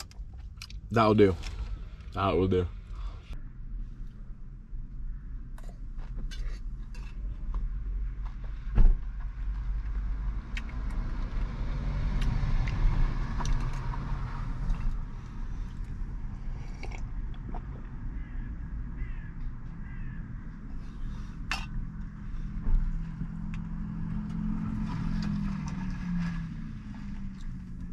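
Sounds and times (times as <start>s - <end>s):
vehicle engine idling: 12.9s - 27.9s.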